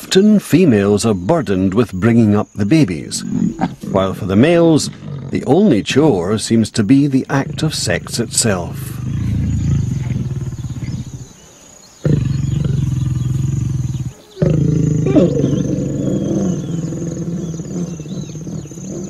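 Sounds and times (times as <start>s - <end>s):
large animal growling deeply: 3.2s - 5.7s, 7.3s - 11.4s, 12.0s - 19.0s.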